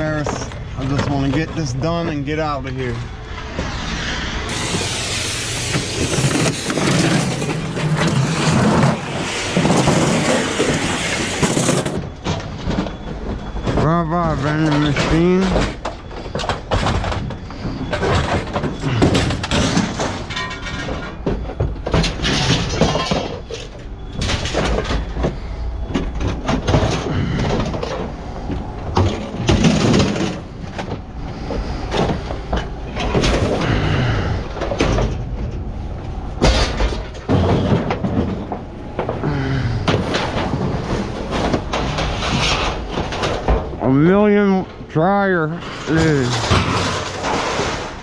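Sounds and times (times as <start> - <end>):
metal bangs and clangs: 0.0 - 28.2, 28.9 - 35.7, 36.4 - 48.0.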